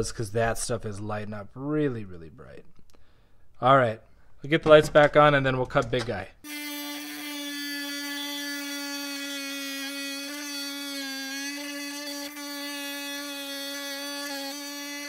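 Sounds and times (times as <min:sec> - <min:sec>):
stone saw motor whine: 0:06.5 - 0:15.0.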